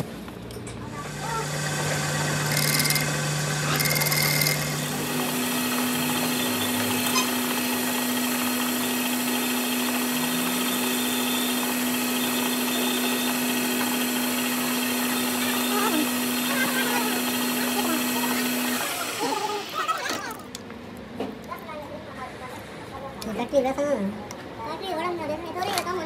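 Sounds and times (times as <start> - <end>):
metal lathe humming: 1.0 - 20.3
lathe tool cutting steel: 1.1 - 20.0.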